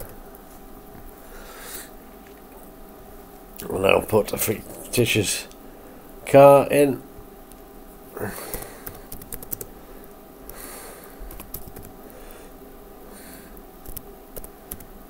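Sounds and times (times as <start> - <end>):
keyboard typing clicks: 8.5 - 9.7, 11.3 - 12.0, 13.8 - 14.9.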